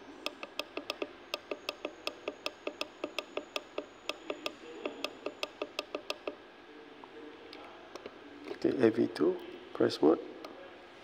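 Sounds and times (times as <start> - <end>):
push buttons clicking: 0.0 - 6.4.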